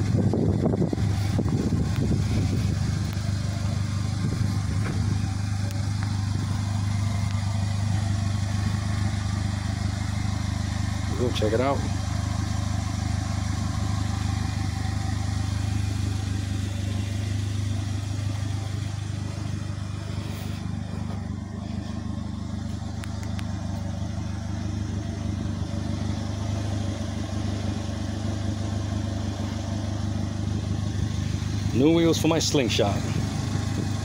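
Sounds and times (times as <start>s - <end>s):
engine idling: 0.0s - 34.0s.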